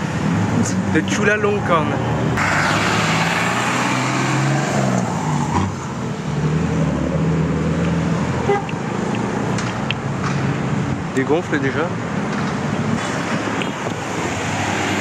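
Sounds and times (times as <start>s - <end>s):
cars driving slowly past: 0.0s - 15.0s
street traffic: 0.0s - 15.0s.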